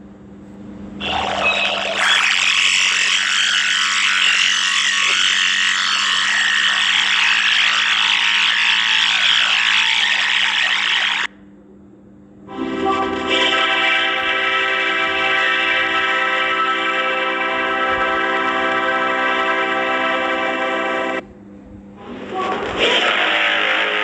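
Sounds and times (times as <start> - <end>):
buzzy robotic pitched tone: 1.0 - 11.3, 12.6 - 20.7
shrill garbled squawking voice: 1.0 - 11.3.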